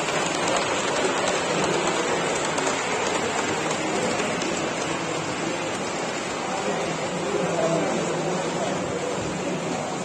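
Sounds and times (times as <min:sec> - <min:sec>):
exhibition hall background hiss: 0:00.0 - 0:10.0.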